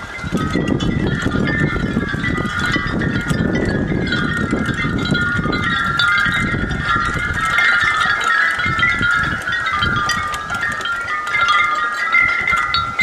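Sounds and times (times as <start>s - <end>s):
glass wind chimes clinking: 0.0s - 13.0s.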